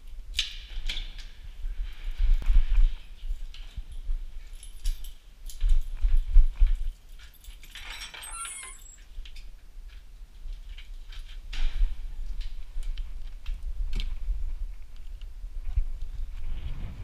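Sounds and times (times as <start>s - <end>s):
short high squeak: 8.0s - 9.0s
low camera rumble: 11.2s - 17.0s.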